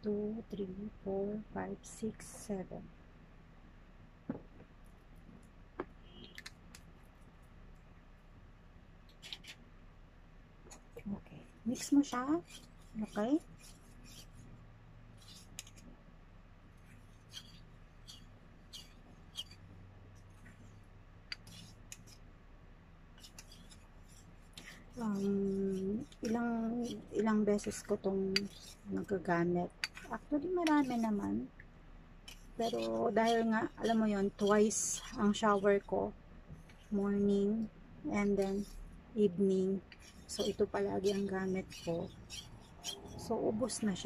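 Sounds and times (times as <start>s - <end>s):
spoon stirring in metal cup: 11.7s - 14.6s, 15.2s - 15.9s, 16.8s - 20.5s, 21.3s - 22.2s, 23.2s - 31.4s, 32.2s - 36.0s, 39.4s - 44.0s.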